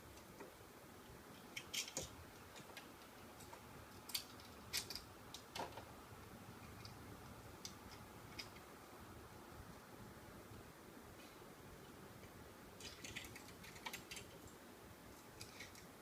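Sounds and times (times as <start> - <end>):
faint irregular clicks and taps: 0.1 - 8.7.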